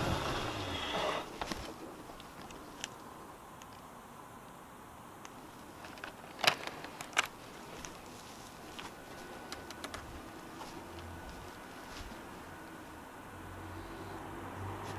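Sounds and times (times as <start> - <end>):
faint steady hiss: 0.0 - 14.9
light clicks: 9.5 - 10.1.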